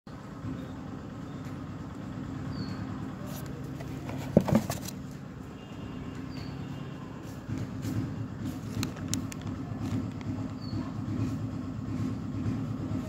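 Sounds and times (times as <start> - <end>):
plastic clicks and knocks: 3.8 - 5.0.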